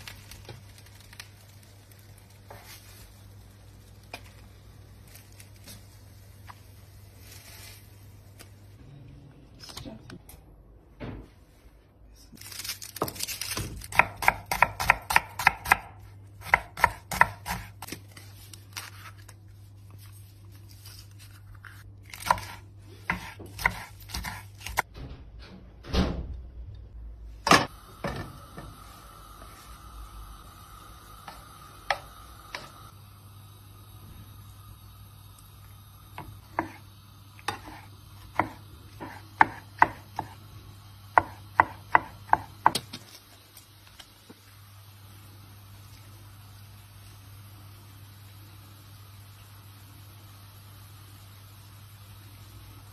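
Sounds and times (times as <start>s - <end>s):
knife chopping on wooden board: 13.9s - 18.0s, 22.2s - 24.8s, 37.5s - 40.4s, 41.2s - 43.0s.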